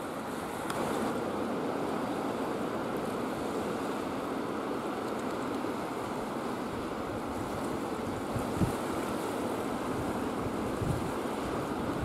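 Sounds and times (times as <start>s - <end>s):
sea water washing: 0.0s - 12.0s
wind rushing across microphone: 5.1s - 12.0s.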